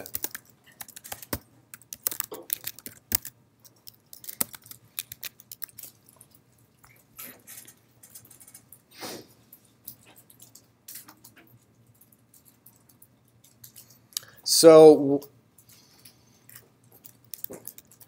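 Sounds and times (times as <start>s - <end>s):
computer keyboard clicks: 0.0s - 6.3s, 16.5s - 18.0s.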